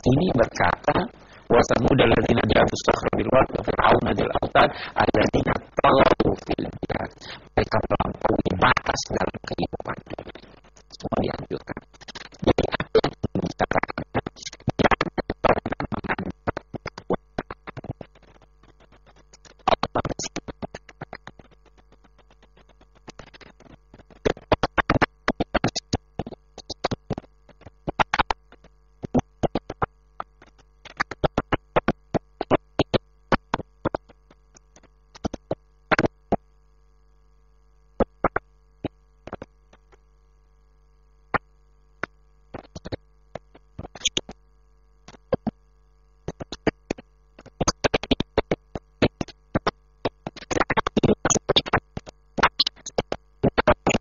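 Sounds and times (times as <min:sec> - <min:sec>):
crackling clicks: 0:00.0 - 0:36.6, 0:38.0 - 0:40.1, 0:41.3 - 0:45.6, 0:46.2 - 0:54.0
faint electrical hum: 0:00.0 - 0:54.0.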